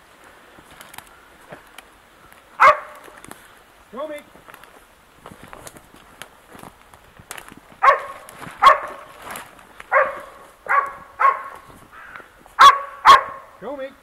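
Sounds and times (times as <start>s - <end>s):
dog barking: 2.6s - 3.0s, 7.8s - 9.1s, 9.9s - 11.7s, 12.6s - 13.6s.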